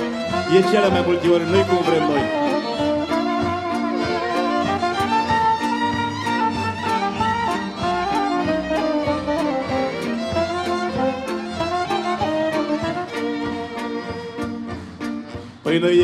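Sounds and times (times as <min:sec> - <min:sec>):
folk band instrumental: 0:00.0 - 0:16.0.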